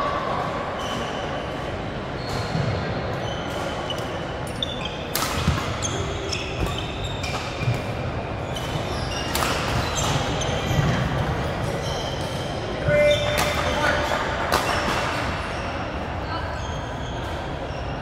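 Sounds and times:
shoes squeaking on court floor: 0.7s - 18.0s
rackets striking shuttlecock: 5.1s - 6.0s, 8.7s - 11.0s.

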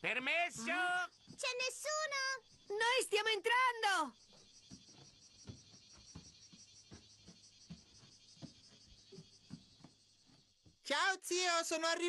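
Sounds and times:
insects chirring: 0.0s - 12.0s
footsteps thudding on floor: 4.6s - 10.8s.

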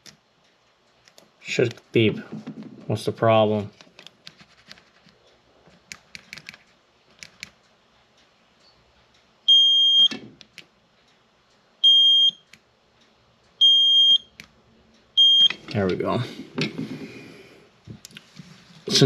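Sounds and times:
meter continuity beeps: 9.4s - 10.3s, 11.8s - 12.6s, 13.6s - 14.5s, 15.1s - 15.8s.

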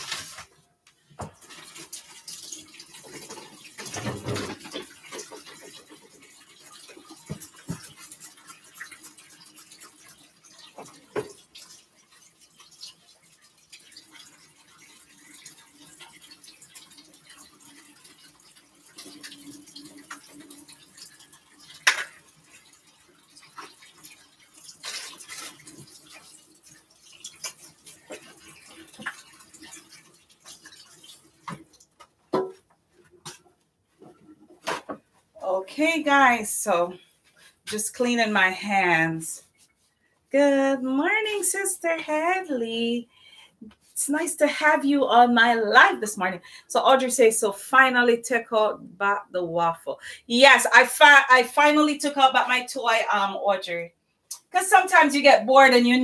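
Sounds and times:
hands washing: 0.0s - 42.4s
tap running into sink: 7.1s - 8.1s, 31.4s - 33.4s.

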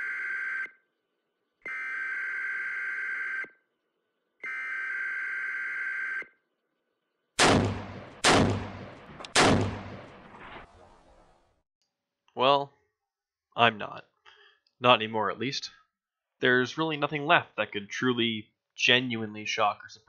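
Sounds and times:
gunshots with echoing tail: 7.4s - 11.2s.

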